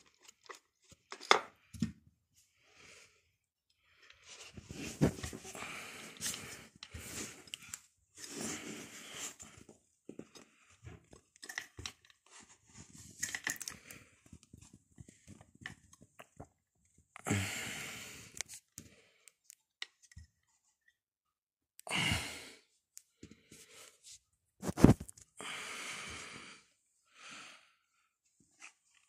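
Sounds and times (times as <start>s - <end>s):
rustling and rubbing of tool: 23.6s - 25.2s.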